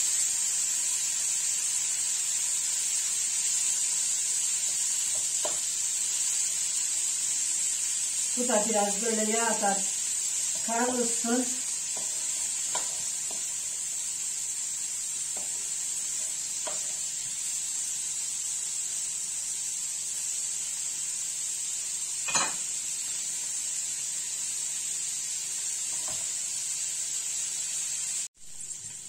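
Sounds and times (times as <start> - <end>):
meat sizzling in a pan: 0.0 - 29.0
wooden spoon knocking on pan: 5.1 - 5.6.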